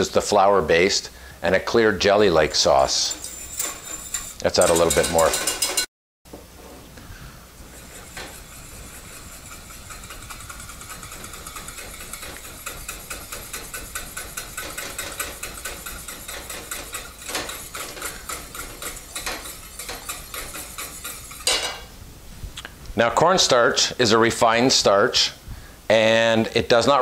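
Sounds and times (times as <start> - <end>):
wire whisk beating in a saucepan: 2.4 - 5.9, 7.6 - 21.9
whisk knocks on saucepan: 8.2 - 21.8.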